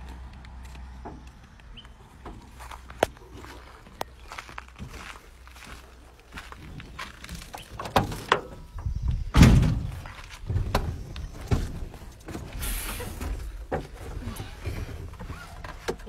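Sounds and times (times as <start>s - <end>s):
truck door slamming: 7.7s - 13.9s.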